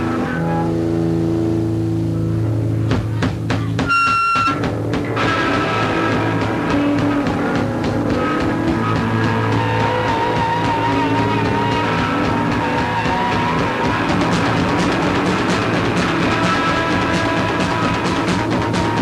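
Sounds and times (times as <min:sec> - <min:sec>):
punk rock band playing: 0:00.0 - 0:19.0
drum hits: 0:02.9 - 0:19.0.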